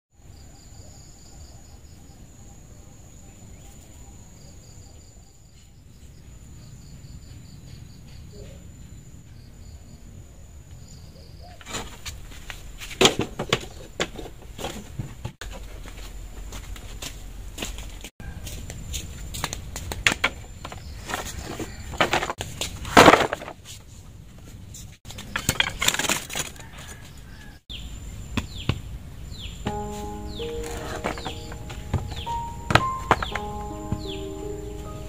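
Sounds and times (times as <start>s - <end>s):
insects chirping: 0.2s - 14.4s, 25.1s - 35.0s
insects whining: 27.7s - 35.0s.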